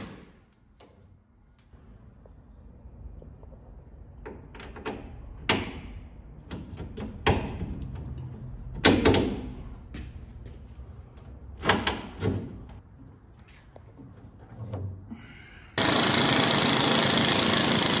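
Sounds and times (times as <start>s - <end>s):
metal bolt clanking and knocking: 4.3s - 9.5s.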